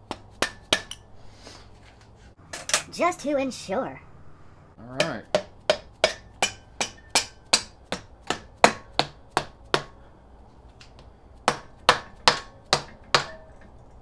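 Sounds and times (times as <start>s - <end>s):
hammer tapping on metal: 0.0s - 1.1s, 5.0s - 10.0s, 11.5s - 13.6s.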